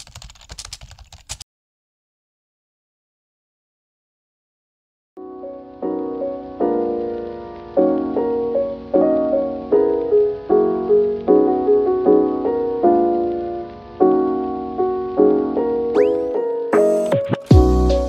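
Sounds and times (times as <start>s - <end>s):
gentle piano music: 5.2s - 18.0s.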